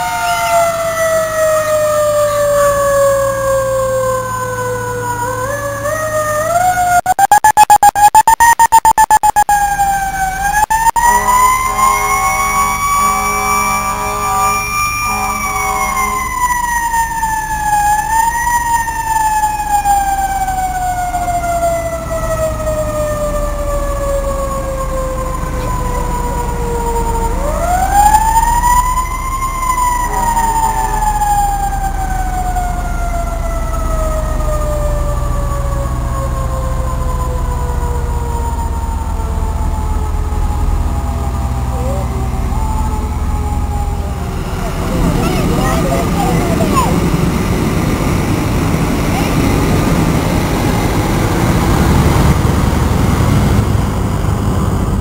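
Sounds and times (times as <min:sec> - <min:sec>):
truck rumbling past: 0:00.0 - 0:07.0, 0:09.7 - 0:55.0
mechanical siren wailing: 0:00.0 - 0:53.0
horn blasts: 0:10.9 - 0:16.7, 0:29.6 - 0:31.6.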